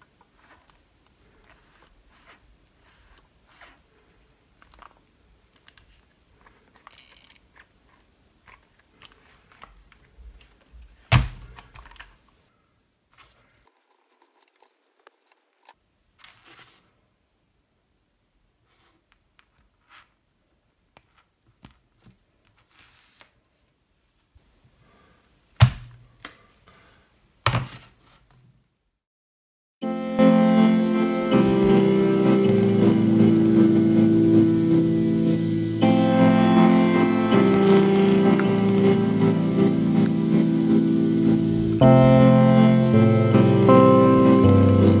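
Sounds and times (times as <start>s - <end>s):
plastic clicks and rustles: 4.6s - 12.4s, 13.1s - 16.4s.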